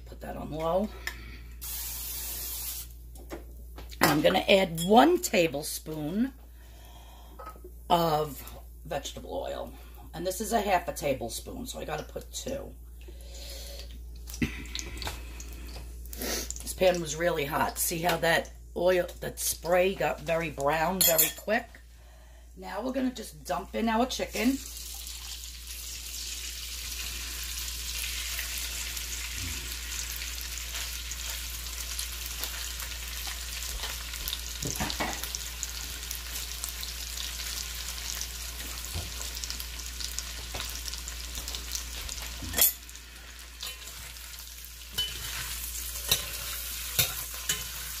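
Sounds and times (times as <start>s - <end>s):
food frying in hot oil: 1.6s - 2.9s, 24.4s - 48.0s.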